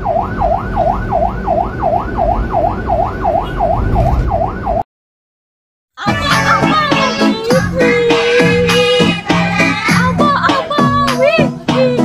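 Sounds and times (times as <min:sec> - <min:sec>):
emergency siren yelping: 0:00.0 - 0:04.8.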